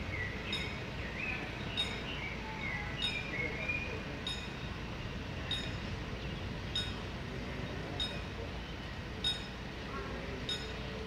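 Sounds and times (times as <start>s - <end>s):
steady low rumble: 0.0s - 2.3s
level-crossing warning bell: 0.4s - 6.0s, 6.7s - 7.2s, 7.8s - 8.6s, 9.2s - 11.0s.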